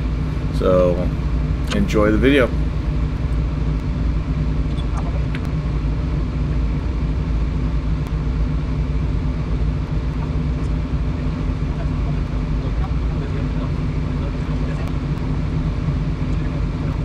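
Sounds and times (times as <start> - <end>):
diesel engine idling: 0.0 - 17.0.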